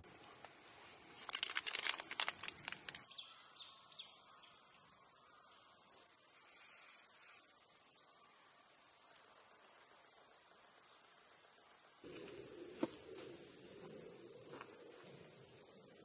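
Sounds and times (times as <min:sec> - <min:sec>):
faint outdoor ambience: 0:00.0 - 0:16.0
clicks and crackles: 0:00.4 - 0:03.1
faint bird chirps: 0:03.0 - 0:16.0.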